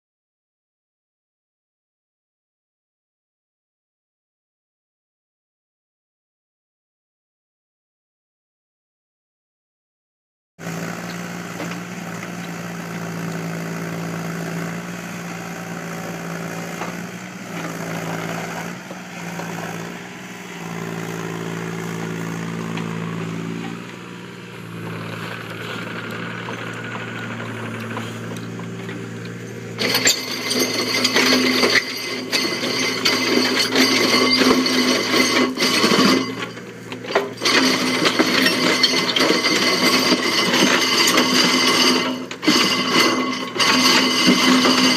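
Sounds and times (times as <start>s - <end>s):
excavator diesel engine running: 10.6s - 44.9s
soil and stones rattling in bucket: 29.7s - 36.6s.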